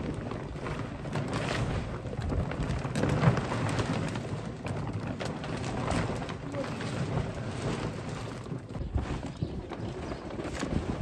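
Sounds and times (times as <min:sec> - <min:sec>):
canvas tarpaulin rustling: 0:00.0 - 0:11.0.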